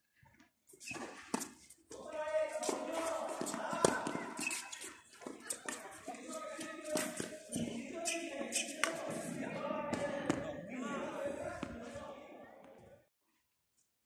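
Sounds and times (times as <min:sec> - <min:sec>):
rackets hitting tennis ball: 0:00.8 - 0:10.5
players calling and talking: 0:00.9 - 0:13.1.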